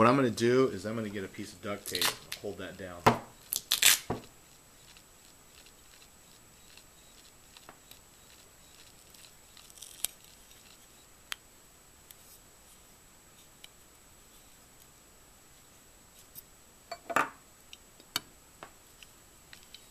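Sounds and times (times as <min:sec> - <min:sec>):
tape crinkling: 0:01.8 - 0:02.5, 0:03.4 - 0:11.0.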